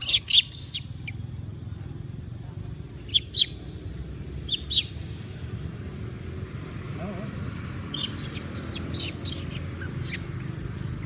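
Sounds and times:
baby monkey distress squeals: 0:00.0 - 0:01.2, 0:03.1 - 0:03.6, 0:04.5 - 0:05.0, 0:07.9 - 0:10.4.

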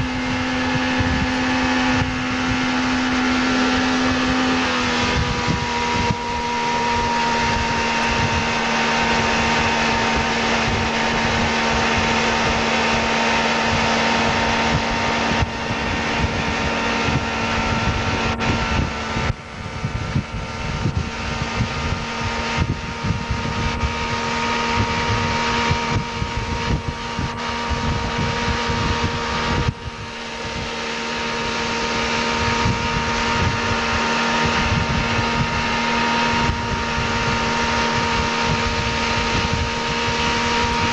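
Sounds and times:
boat engine humming: 0:00.0 - 0:40.9
rushing water: 0:00.0 - 0:40.9
wind: 0:00.0 - 0:40.9.

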